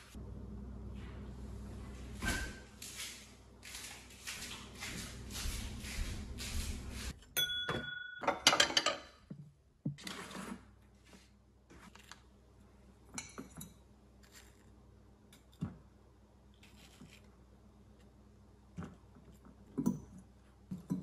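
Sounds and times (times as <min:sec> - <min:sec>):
metal fork clinking on containers: 0:07.2 - 0:09.2.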